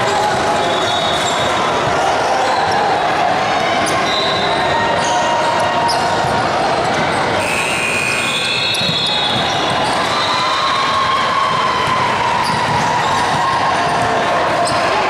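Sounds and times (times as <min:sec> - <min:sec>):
basketball bouncing on gym floor: 0:08.7 - 0:10.0, 0:11.4 - 0:14.8.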